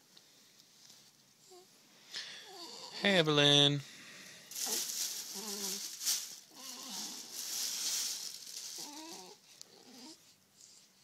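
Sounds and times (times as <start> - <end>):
rustling hiss: 3.8 - 11.0
baby cooing: 6.5 - 7.3.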